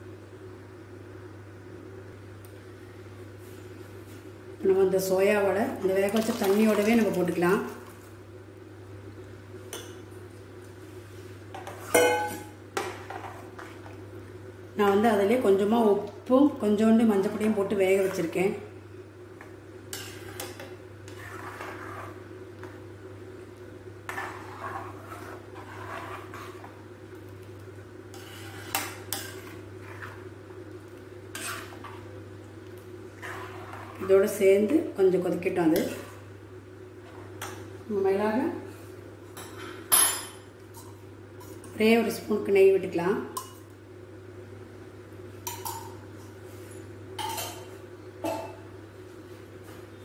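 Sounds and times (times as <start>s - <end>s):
steady low hum: 0.0s - 50.0s
metal spoon scraping pan: 19.9s - 22.2s, 24.1s - 26.7s, 28.1s - 30.2s, 31.3s - 32.0s, 33.2s - 34.3s.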